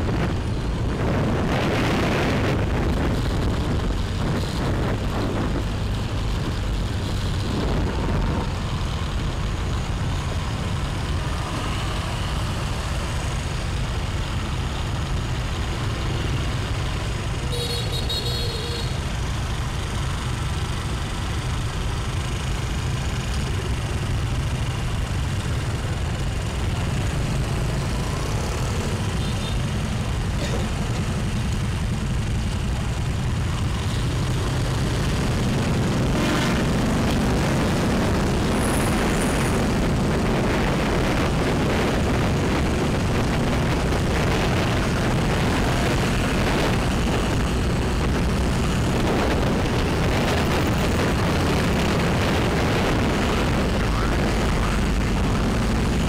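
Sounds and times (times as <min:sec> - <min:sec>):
wind on microphone: 0:00.0 - 0:08.6
motorbike engine rumble: 0:00.0 - 0:56.0
road noise: 0:00.0 - 0:56.0.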